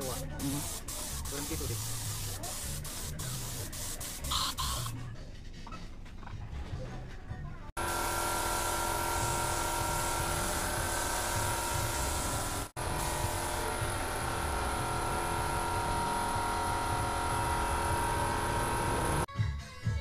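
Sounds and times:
paint spray gun hissing: 0.0 - 5.0, 7.8 - 19.3
air compressor humming: 7.8 - 19.3.

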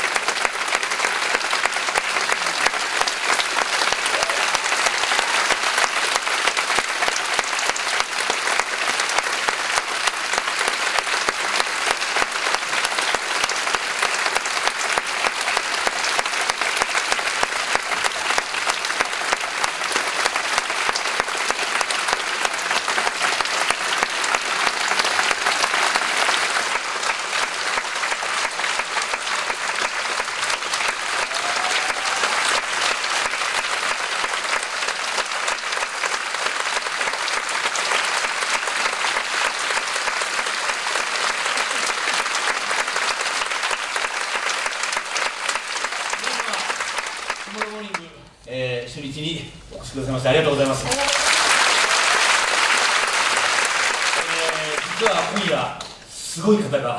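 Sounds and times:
audience applauding: 0.0 - 48.2, 50.0 - 56.9.

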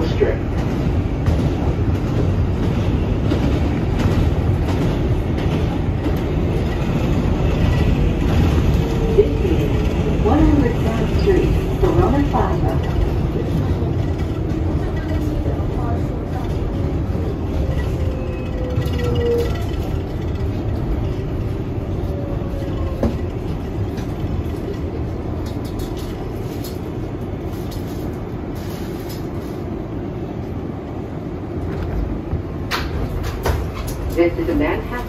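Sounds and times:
subway train rumble: 0.0 - 35.0.

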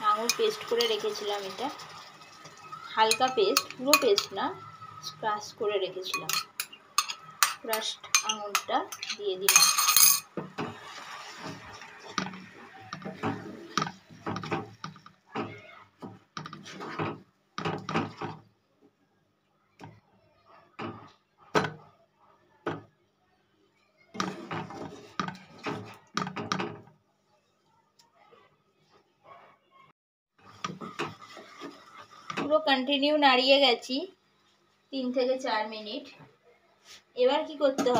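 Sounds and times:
spatula scraping a frying pan: 10.5 - 15.0, 16.4 - 18.5, 24.2 - 26.0, 30.4 - 32.5.

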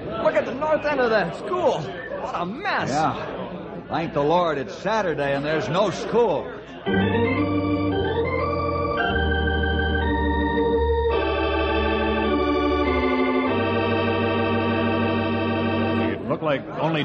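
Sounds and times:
organ playing sustained chords: 6.8 - 16.4.

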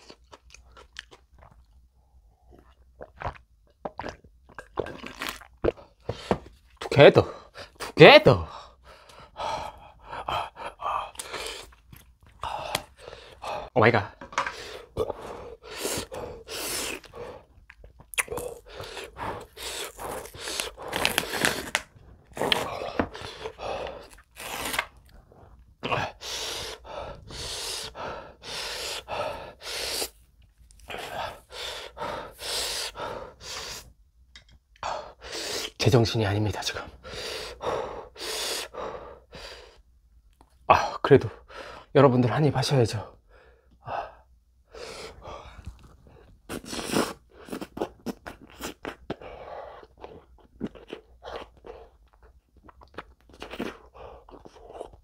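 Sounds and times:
man gasping and panting: 5.8 - 6.5, 7.2 - 17.6, 18.3 - 21.4, 22.4 - 24.3, 25.5 - 30.2, 30.8 - 33.9, 36.8 - 39.8
breathy huffs: 12.4 - 17.6, 25.5 - 30.2, 30.9 - 33.9, 36.9 - 39.8.

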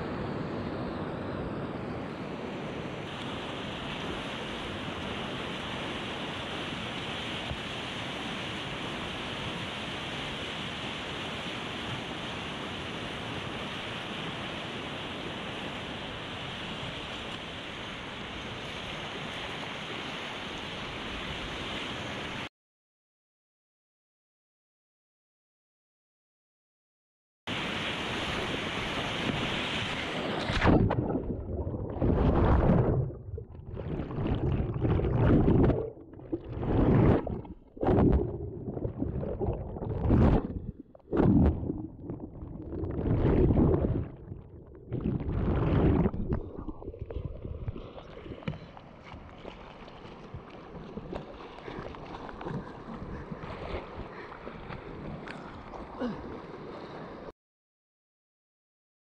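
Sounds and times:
river water rushing and splashing: 27.5 - 30.8.

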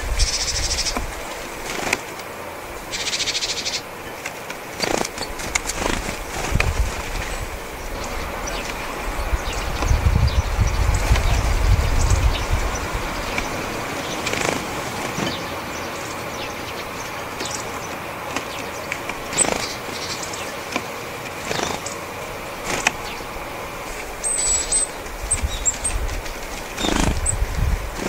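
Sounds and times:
bird wings whirring: 0.0 - 28.0
high bird call notes: 7.7 - 26.0.

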